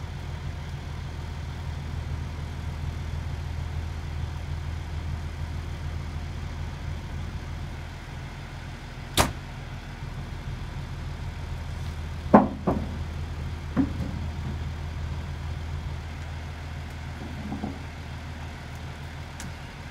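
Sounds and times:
heavy machinery engine idling: 0:00.0 - 0:19.9
sharp knocks: 0:12.3 - 0:13.0.

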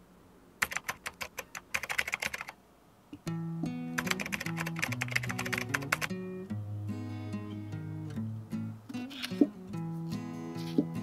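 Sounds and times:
acoustic guitar music: 0:03.2 - 0:11.0.

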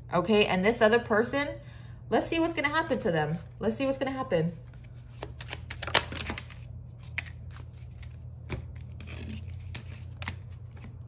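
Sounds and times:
cards being shuffled: 0:04.5 - 0:11.0.

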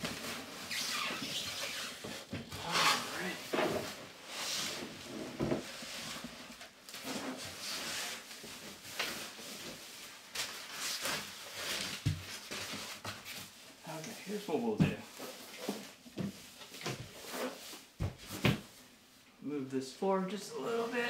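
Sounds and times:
packing foam scraping and rustling: 0:00.0 - 0:14.5.

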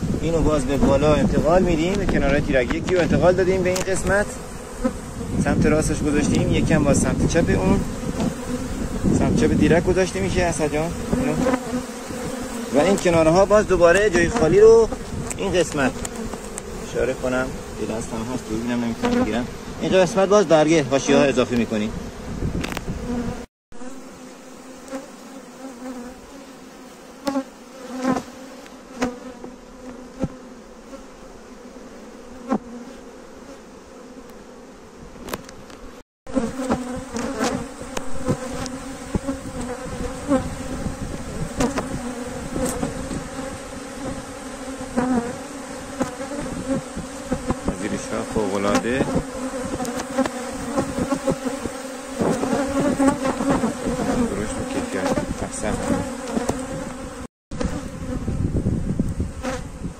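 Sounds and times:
honeybees buzzing: 0:00.0 - 0:59.9
hive frames clicking and knocking: 0:01.8 - 0:04.3, 0:11.0 - 0:16.8, 0:22.6 - 0:23.2, 0:27.2 - 0:30.4, 0:35.2 - 0:40.4, 0:41.2 - 0:43.7, 0:45.0 - 0:57.8.

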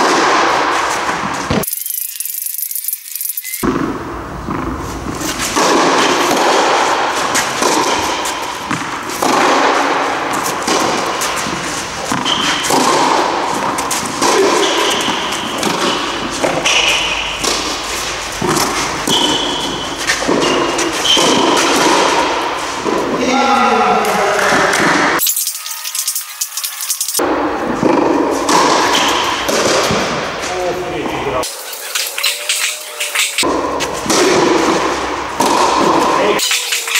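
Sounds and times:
steady noisy background: 0:00.0 - 0:36.9
tennis ball thuds: 0:03.6 - 0:23.2, 0:27.2 - 0:30.4, 0:33.4 - 0:36.4.

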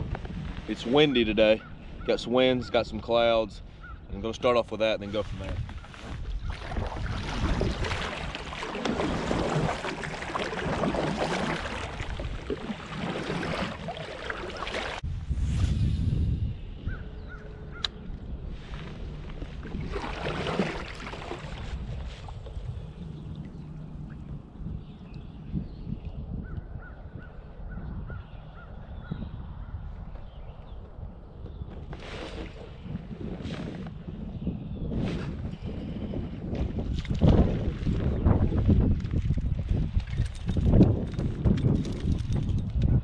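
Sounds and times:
wind rumble on microphone: 0:00.0 - 0:43.0
kayak paddle splashing water: 0:05.9 - 0:15.0, 0:19.2 - 0:24.2, 0:31.9 - 0:32.8.

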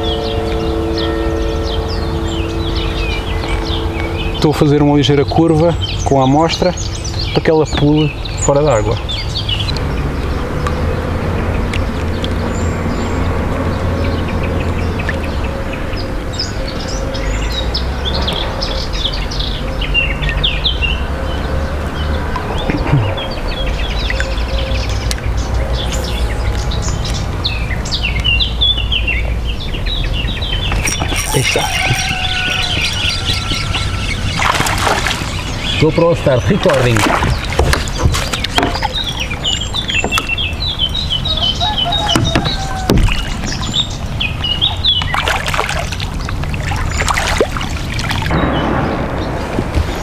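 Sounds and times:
water lapping around boat: 0:00.0 - 0:48.5
songbirds chirping: 0:00.0 - 0:50.0
steady low rumble: 0:22.5 - 0:31.6
loud splash: 0:31.3 - 0:35.9, 0:36.6 - 0:39.4, 0:44.8 - 0:50.0.

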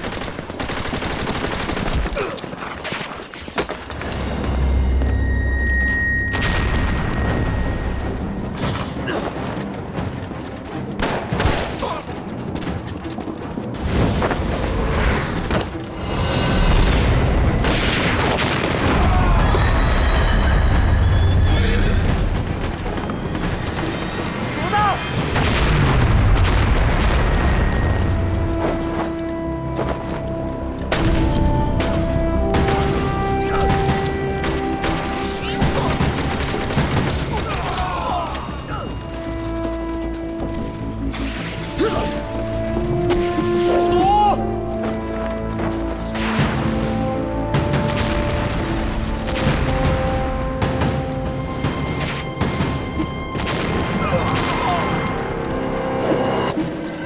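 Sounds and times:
rapid gunshots: 0:00.0 - 0:02.7, 0:33.5 - 0:38.0
music: 0:00.0 - 0:57.0
explosions: 0:16.6 - 0:28.2.

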